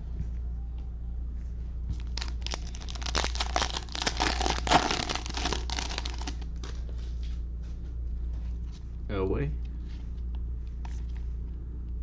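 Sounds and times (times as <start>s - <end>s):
cellophane tearing and crinkling: 2.0s - 6.8s.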